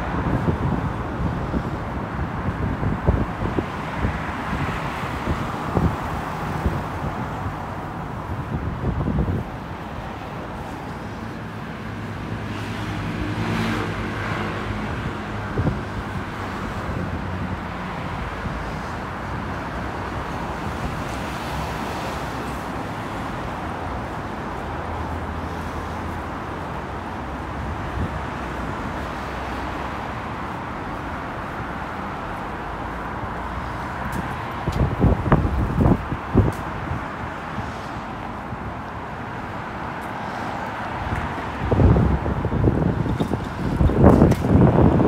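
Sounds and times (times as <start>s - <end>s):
road traffic hum: 0.0s - 45.0s.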